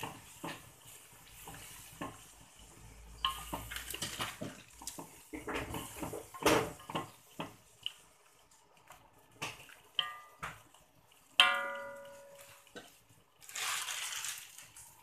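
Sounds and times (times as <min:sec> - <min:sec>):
chopsticks stirring in water: 0:00.0 - 0:15.0
sharp knock on metal pot: 0:11.4 - 0:12.5.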